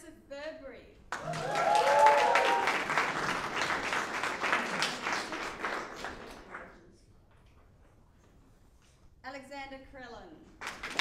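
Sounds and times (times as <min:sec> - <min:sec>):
audience applause: 0:01.1 - 0:06.6, 0:10.6 - 0:11.0.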